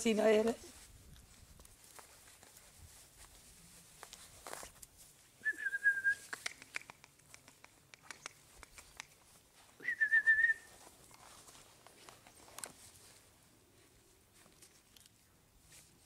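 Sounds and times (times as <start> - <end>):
person whistling short notes: 5.4 - 6.6, 9.8 - 10.7.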